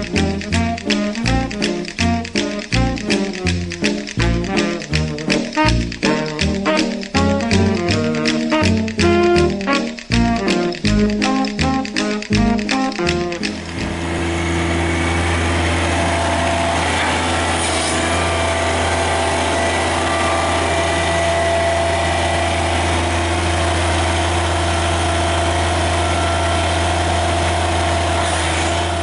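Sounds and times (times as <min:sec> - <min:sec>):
diesel tractor engine idling: 0:00.0 - 0:29.0.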